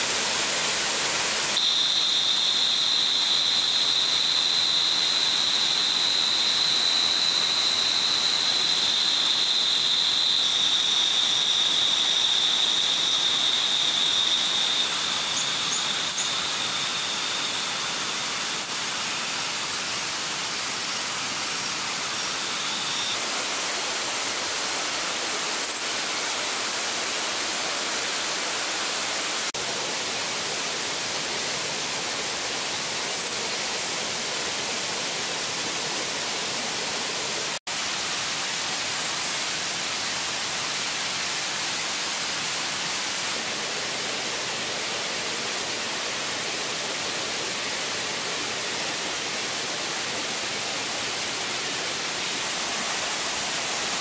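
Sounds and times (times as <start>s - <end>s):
hiss of falling water: 0.0s - 54.0s.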